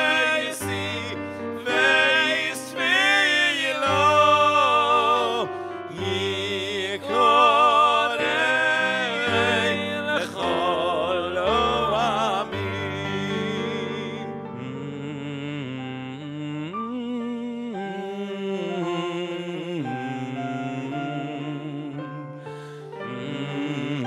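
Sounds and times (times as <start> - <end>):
man singing operatic melody: 0.0 - 24.0
singer breathing: 22.4 - 23.0.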